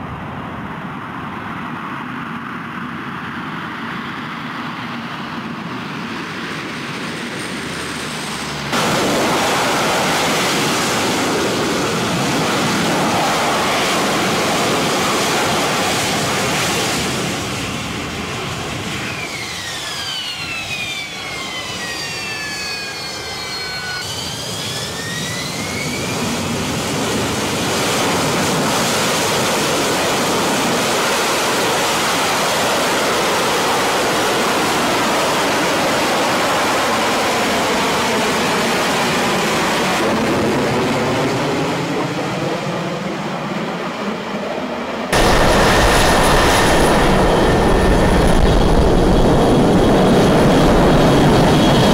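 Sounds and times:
high turbine whine: 0:00.0 - 0:51.9
jet engine roar: 0:00.0 - 0:51.9.

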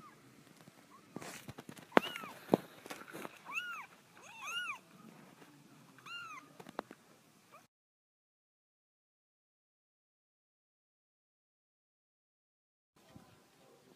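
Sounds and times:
kittens mewing: 0:01.8 - 0:02.6, 0:03.3 - 0:04.9, 0:06.0 - 0:06.5.

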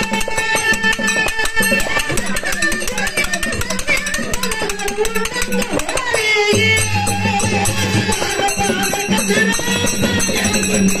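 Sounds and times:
hand cymbals struck rhythmically: 0:00.0 - 0:11.0
person singing: 0:00.0 - 0:11.0.

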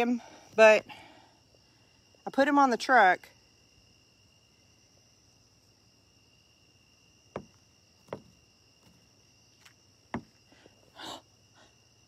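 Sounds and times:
night insects chirring: 0:00.0 - 0:12.0
sharp knocks: 0:07.4 - 0:08.4.

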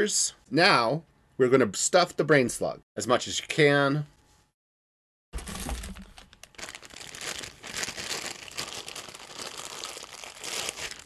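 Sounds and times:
fibre stuffing rustling: 0:05.4 - 0:11.0.

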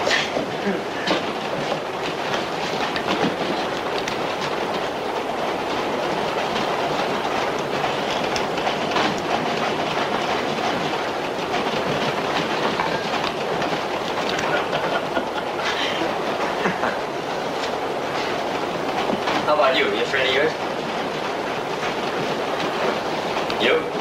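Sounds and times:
subway train rumble: 0:00.0 - 0:24.0
wheels clacking over rail joints: 0:00.0 - 0:24.0.

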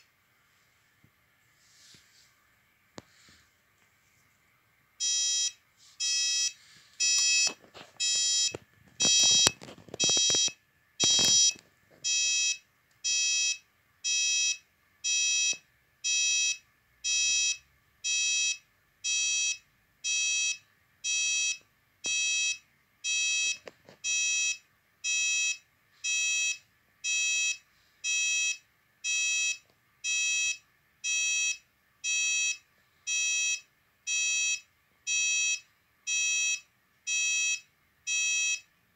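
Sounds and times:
alarm keypad buzzer beeping: 0:05.0 - 0:38.7
clicks and rustles of handling: 0:06.8 - 0:12.0.

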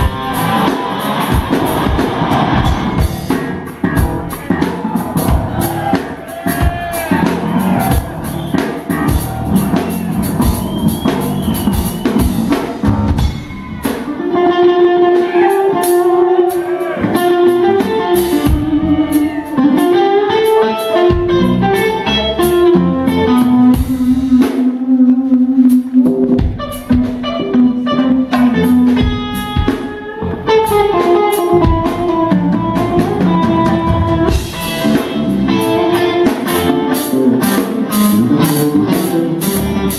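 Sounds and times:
bass guitar: 0:00.0 - 0:39.9
distorted electric guitar lead: 0:00.0 - 0:39.9
drum kit: 0:00.0 - 0:39.9.

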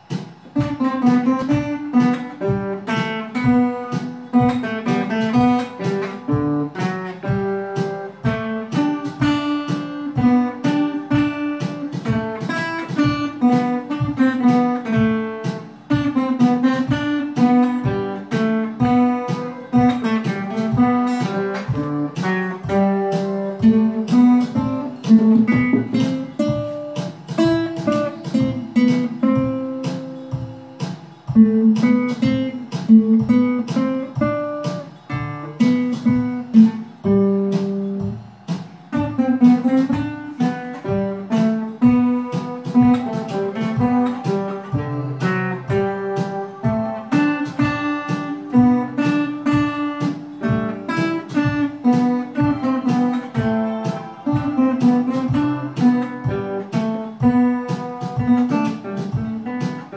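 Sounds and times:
acoustic guitars picking: 0:00.0 - 0:59.9.

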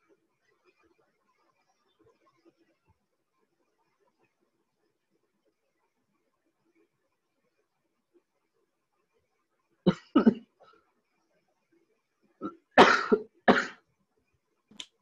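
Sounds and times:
person coughing: 0:12.4 - 0:13.8.

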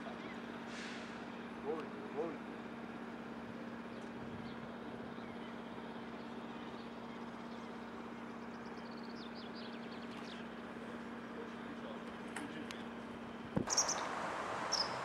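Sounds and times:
steady low hum: 0:00.0 - 0:15.0
small bird chirping: 0:13.7 - 0:15.0.

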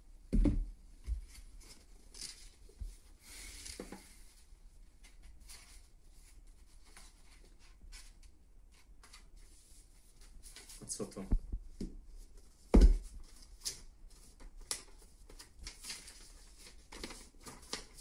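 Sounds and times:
pages rustling and flicking: 0:13.2 - 0:18.0.

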